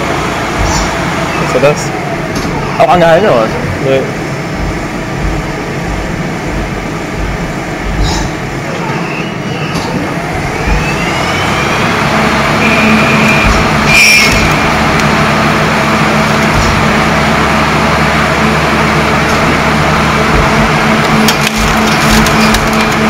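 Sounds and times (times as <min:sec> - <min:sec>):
lathe machining noise: 0:00.0 - 0:23.0
rising machine whine: 0:00.0 - 0:23.0.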